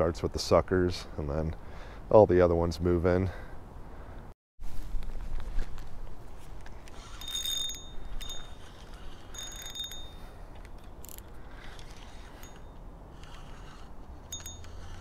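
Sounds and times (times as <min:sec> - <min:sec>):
fishing reel whirring: 0:06.9 - 0:15.0.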